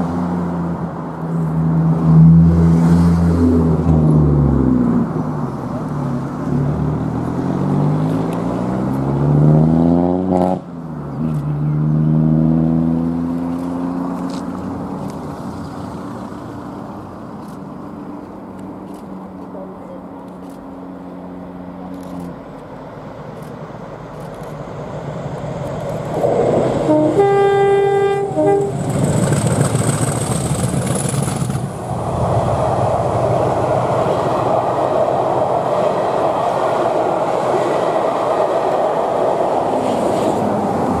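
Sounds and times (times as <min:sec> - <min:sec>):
diesel locomotives passing: 0:17.8 - 0:41.0
train horn blasts: 0:26.8 - 0:28.9
wheels on rails: 0:28.0 - 0:41.0.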